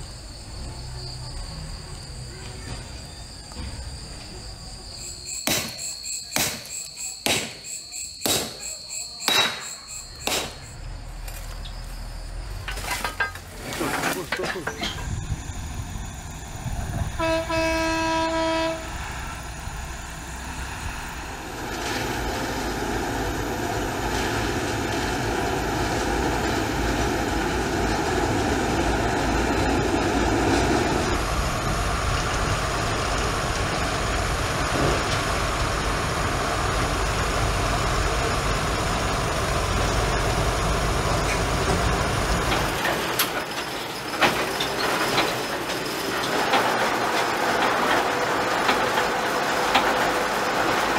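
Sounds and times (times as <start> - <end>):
locomotive engine rumble: 0.0 - 50.9
train wheels on rails: 0.0 - 50.9
locomotive horn: 17.0 - 19.1.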